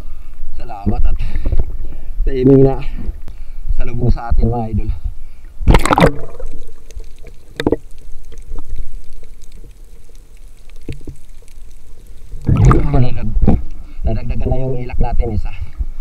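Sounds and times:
water rushing: 5.7 - 13.5
sharp clicks underwater: 5.7 - 13.8.

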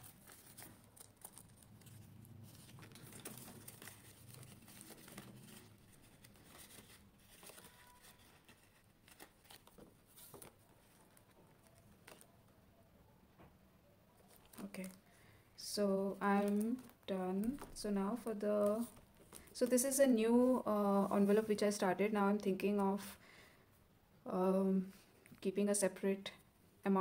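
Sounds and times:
plastic and paper rustling: 0.0 - 12.4, 14.2 - 15.1, 16.3 - 21.6.

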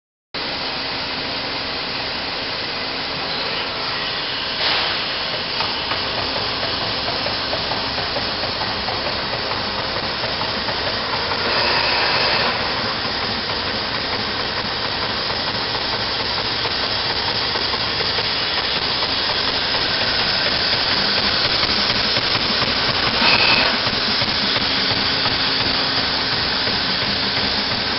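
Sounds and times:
machine hiss: 0.5 - 27.9
punch press mechanical rushing: 4.1 - 27.9.

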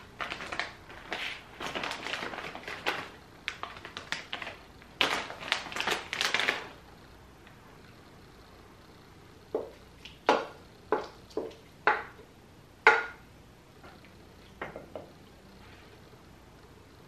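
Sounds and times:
spatula knocking glass bowl: 12.9 - 13.2.

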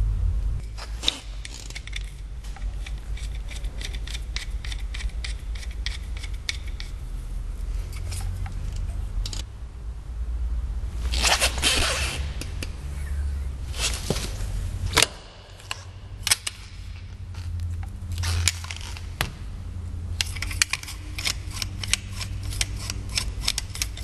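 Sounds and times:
steady low hum: 0.0 - 24.0
tools clicking and scraping: 0.6 - 9.5, 13.7 - 19.2, 20.1 - 24.0
rushing scraping noise: 10.9 - 13.0, 13.6 - 15.0.

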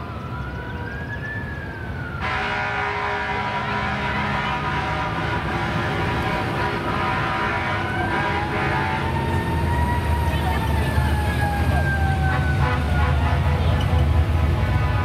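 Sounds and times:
police siren wailing: 0.0 - 15.0
car horns honking: 2.2 - 9.2, 12.2 - 15.0.

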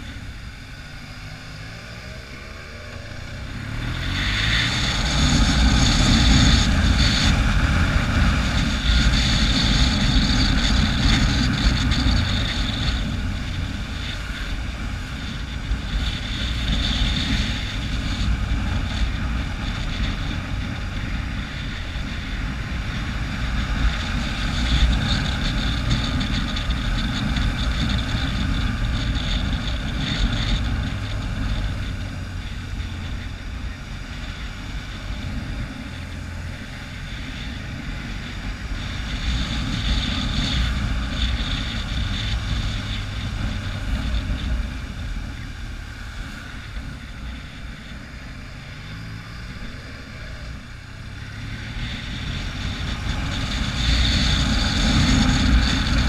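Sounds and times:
motorcycle engine running: 0.0 - 56.0
wind rushing over microphone: 0.0 - 56.0.

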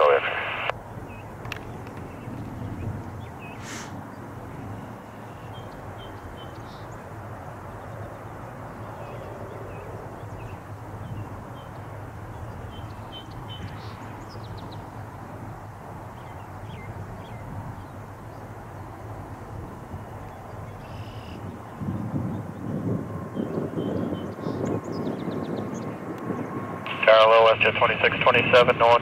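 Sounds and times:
distant jet engines rumbling: 0.0 - 29.0
small birds chirping: 0.9 - 22.8.

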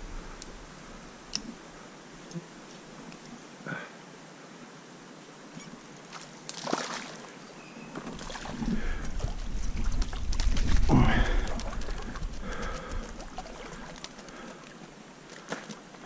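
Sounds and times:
stream water splashing: 6.0 - 16.0.

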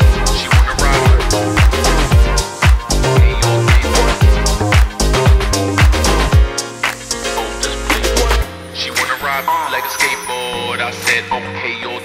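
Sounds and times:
kick drum: 0.0 - 6.6
bass line: 0.0 - 9.4
hi-hats: 0.0 - 9.4.

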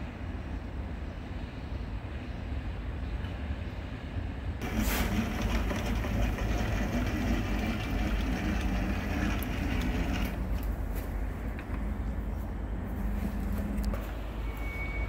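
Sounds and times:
lathe low hum: 4.6 - 15.0.

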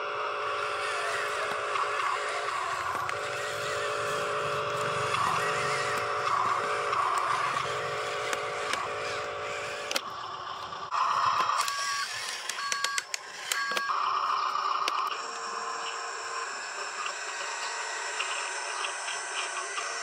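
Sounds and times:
toy truck motor whine: 0.0 - 20.0.

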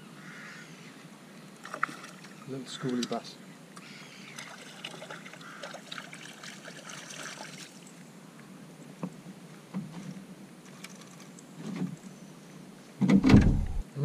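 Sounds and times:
short low thumps: 13.1 - 13.9.

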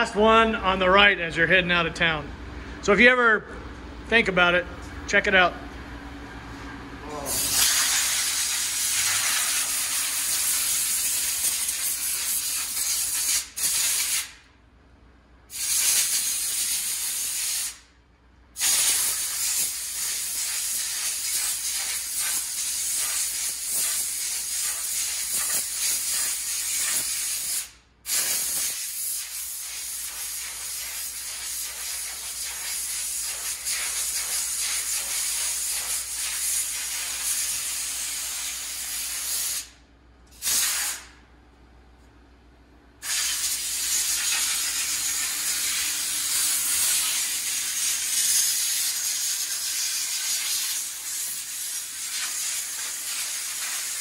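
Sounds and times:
spray gun air hissing: 7.3 - 14.4, 15.5 - 17.9, 18.6 - 39.8, 40.4 - 41.1, 43.0 - 54.0.

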